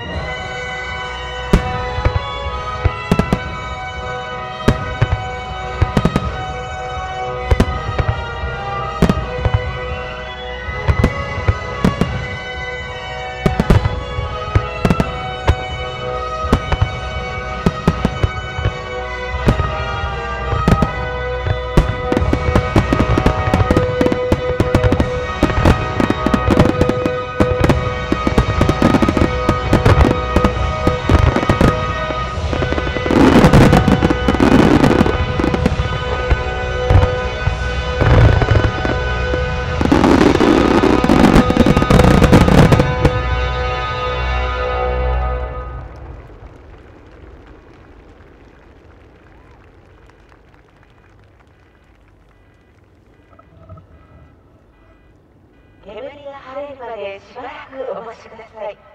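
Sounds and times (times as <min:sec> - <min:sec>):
music playing: 0:00.0 - 0:46.3.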